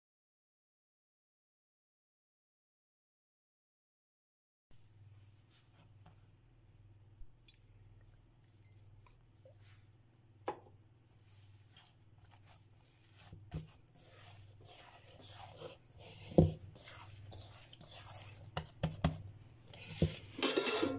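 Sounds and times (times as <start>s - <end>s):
low steady hum: 4.8s - 20.9s
hands kneading dough in bowl: 11.2s - 20.6s.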